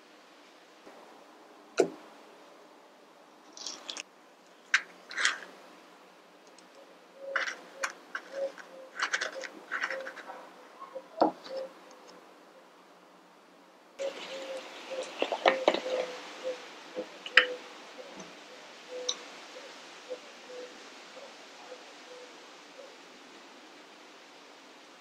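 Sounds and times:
small clicks and scrapes: 3.4s - 5.6s, 6.4s - 10.4s, 15.0s - 16.1s.

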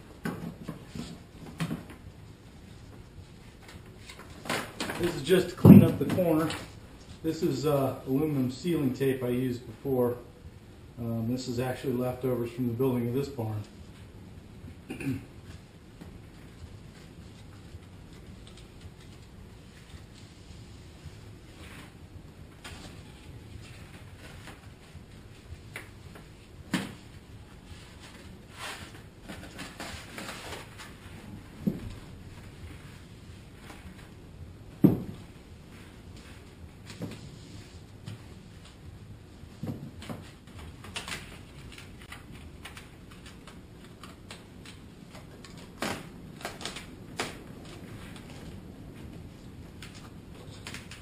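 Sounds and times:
tape rustling and crinkling: 0.1s - 7.3s, 15.4s - 34.3s, 35.1s - 51.0s
foil tape crinkling: 40.8s - 48.5s.

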